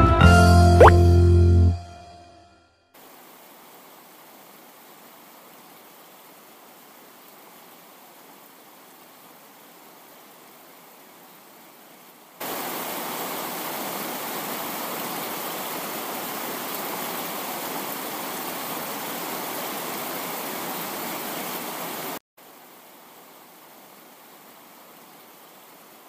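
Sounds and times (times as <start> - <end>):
steady rushing hiss: 3.0 - 8.6, 12.3 - 21.0.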